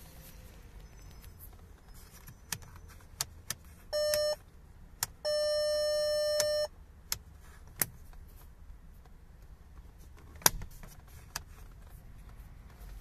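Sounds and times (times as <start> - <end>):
car warning tone beeping: 0.8 - 3.0, 3.8 - 4.5, 5.1 - 6.8.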